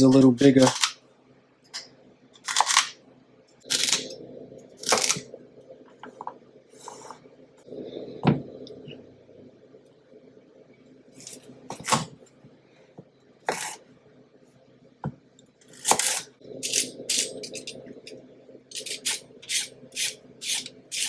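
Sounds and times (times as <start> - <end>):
vegetable peeler scraping carrot: 18.7 - 21.0.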